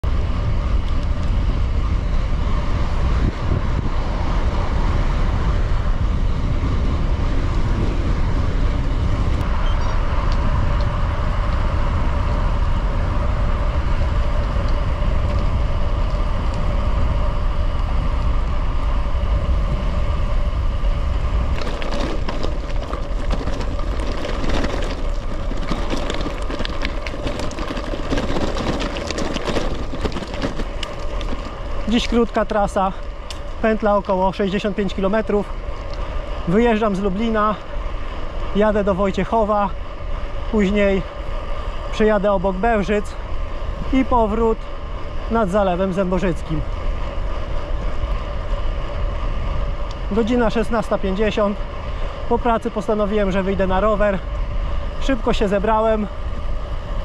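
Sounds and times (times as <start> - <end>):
wind rushing over microphone: 0.0 - 57.0
bike tyres rolling: 0.1 - 18.6, 20.1 - 42.6.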